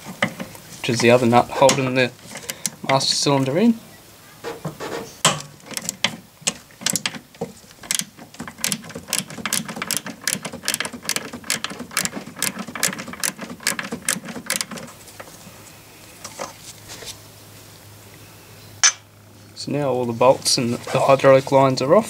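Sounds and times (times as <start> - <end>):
ratcheting wrench clicking: 7.8 - 14.8.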